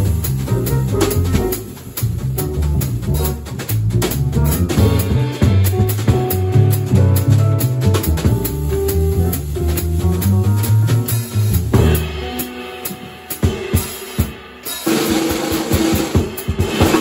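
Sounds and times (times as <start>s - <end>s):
upright bass: 0.0s - 13.2s
drum kit with cymbals: 0.0s - 17.0s.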